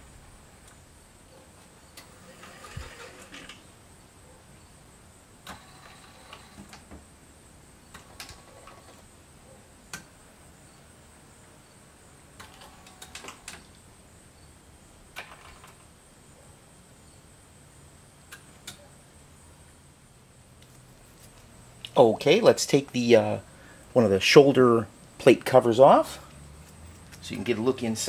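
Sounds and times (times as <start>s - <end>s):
sharp motor clicks: 2.0s - 3.6s.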